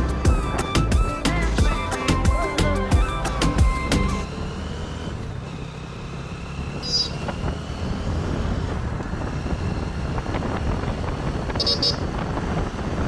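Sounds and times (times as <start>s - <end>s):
background music: 0.0s - 5.3s
traffic noise: 0.0s - 13.0s.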